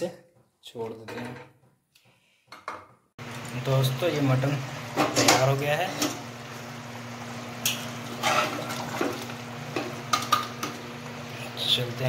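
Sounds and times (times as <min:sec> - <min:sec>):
metal spatula scraping a pot: 0:08.1 - 0:09.1.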